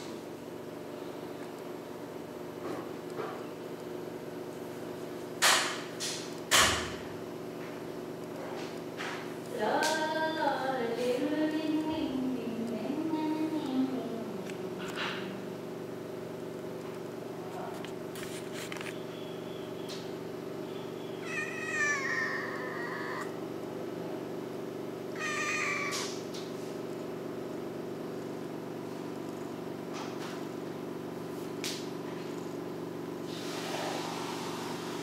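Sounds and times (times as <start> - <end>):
cat meowing: 21.2 - 23.4, 25.2 - 26.2.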